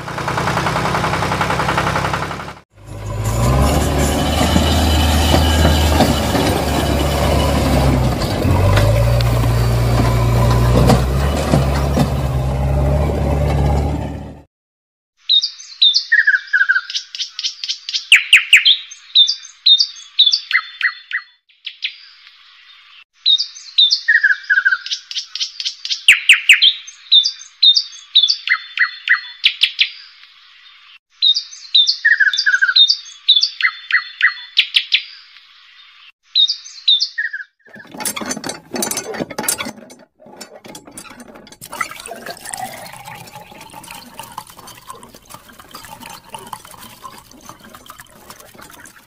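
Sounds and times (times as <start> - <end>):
water from hose splashing: 0.0 - 12.7, 37.7 - 49.0
birds chirping and twittering: 15.2 - 49.0.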